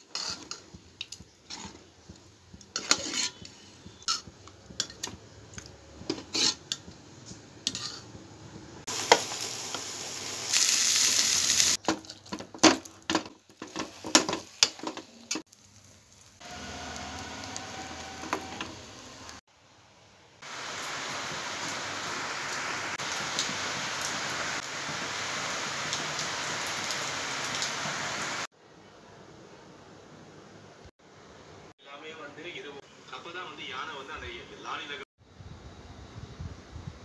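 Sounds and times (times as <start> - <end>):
utensils scraping metal pot: 0.0 - 6.9, 7.6 - 8.2
food sizzling: 0.0 - 19.5, 20.4 - 28.5.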